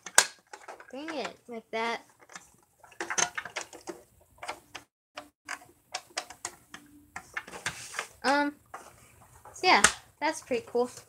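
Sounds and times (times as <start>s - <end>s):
plastic pieces clicking and knocking: 0.0s - 1.4s, 2.2s - 8.4s.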